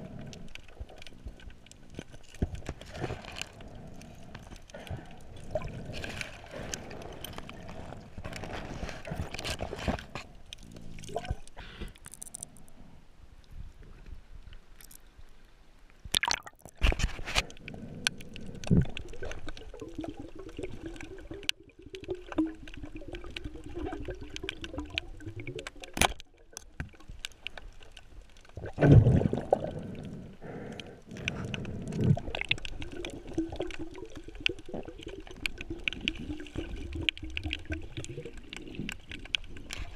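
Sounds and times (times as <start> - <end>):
underwater bubbling and gurgling: 0.0 - 39.9.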